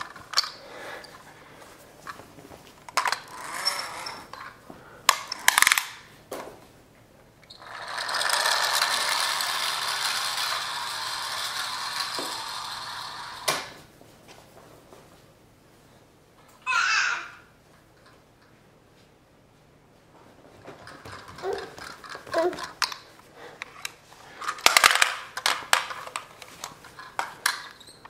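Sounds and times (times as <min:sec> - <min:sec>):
toy car motor whirring: 0:03.0 - 0:04.4, 0:07.5 - 0:13.8.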